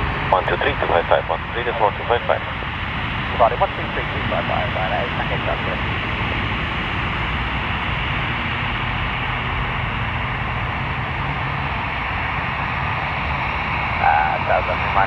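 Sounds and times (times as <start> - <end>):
low hum: 0.0 - 15.0
radio static hiss: 0.3 - 5.8, 14.0 - 15.0.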